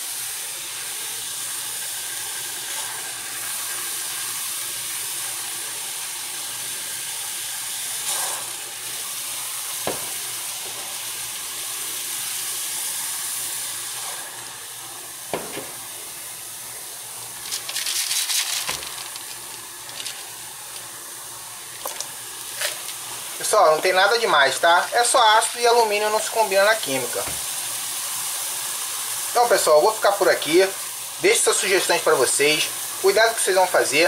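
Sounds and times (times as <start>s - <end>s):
acid fizzing on metal can: 0.1s - 34.0s
crackling: 17.4s - 20.9s.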